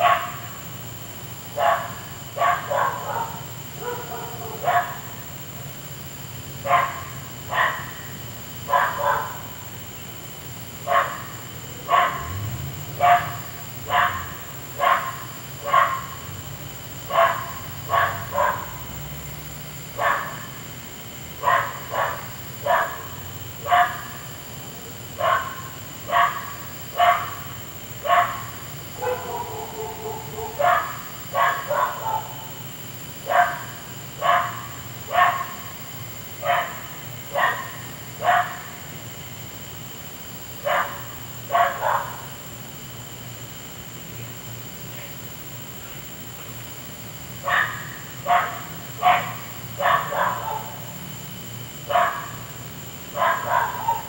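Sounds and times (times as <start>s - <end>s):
dog barking: 0.0s - 0.5s, 1.6s - 5.2s, 6.6s - 8.1s, 8.7s - 9.6s, 10.8s - 12.4s, 13.0s - 16.2s, 17.1s - 18.8s, 20.0s - 20.6s, 21.4s - 24.2s, 25.2s - 32.5s, 33.2s - 35.7s, 36.4s - 38.8s, 40.6s - 42.3s, 47.4s - 50.9s, 51.9s - 52.4s, 53.1s - 54.0s.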